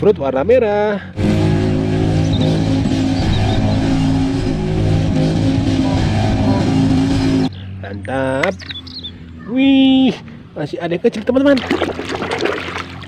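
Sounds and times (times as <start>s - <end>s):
off-road vehicle engine running hard: 1.0s - 10.7s.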